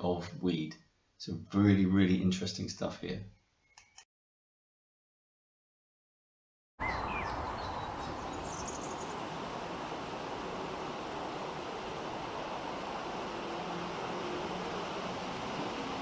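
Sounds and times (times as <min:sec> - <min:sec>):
river water rushing: 0:06.9 - 0:16.0.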